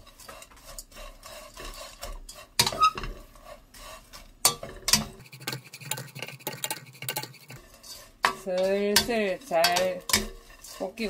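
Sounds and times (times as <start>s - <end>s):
dried fish rustling in a pan: 0.0s - 4.5s, 7.5s - 11.0s
wooden spatulas clacking on pan: 2.0s - 3.2s, 4.4s - 7.6s, 8.2s - 11.0s.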